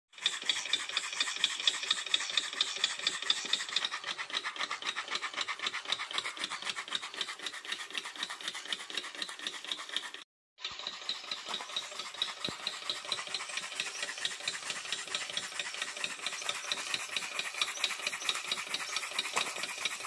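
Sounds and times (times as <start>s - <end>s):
steam engine chuffing and clicking: 0.2s - 20.0s.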